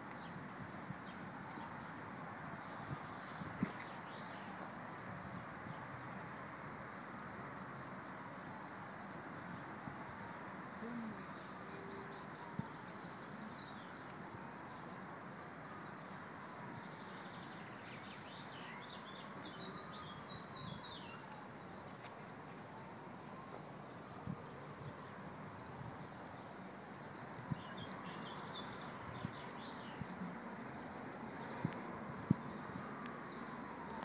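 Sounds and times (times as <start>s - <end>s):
small birds chirping: 10.0s - 25.0s, 25.9s - 34.0s.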